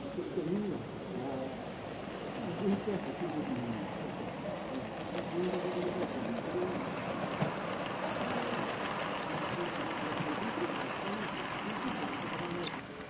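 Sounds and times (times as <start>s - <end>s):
metal wheels rolling on rails: 0.0s - 13.0s
model train motor running: 0.0s - 13.0s.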